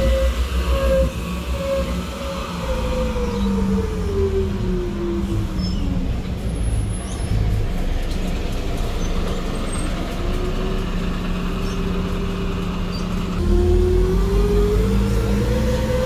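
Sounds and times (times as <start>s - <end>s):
bus engine pulling away: 0.0s - 16.0s
diesel bus passing: 0.0s - 16.0s.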